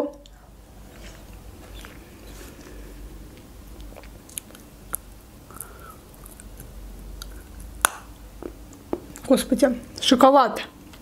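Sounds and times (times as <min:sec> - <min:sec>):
soft chewing: 0:00.2 - 0:07.8
wet mouth clicks: 0:03.3 - 0:09.2.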